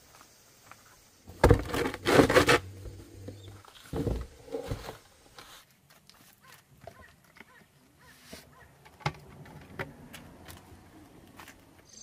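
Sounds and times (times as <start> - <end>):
mortar scraping against tub: 1.3 - 5.6.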